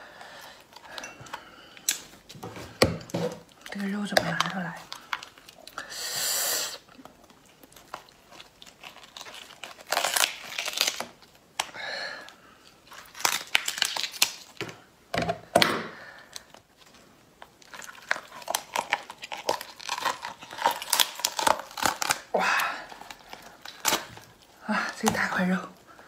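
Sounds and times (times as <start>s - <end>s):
lobster shell crackling and tearing: 3.4s - 5.8s, 6.8s - 14.8s, 16.2s - 25.5s.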